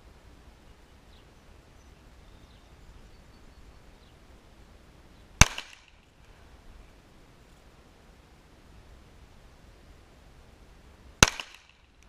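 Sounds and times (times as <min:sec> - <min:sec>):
faint bird chirps: 0:00.6 - 0:04.3
pistol shot with echo: 0:05.4 - 0:06.0, 0:11.2 - 0:11.8.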